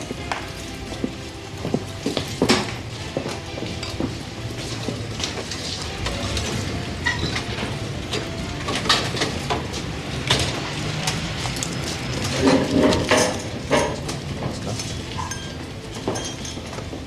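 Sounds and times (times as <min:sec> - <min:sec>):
glasses and dishes clinking: 0:11.6 - 0:17.0.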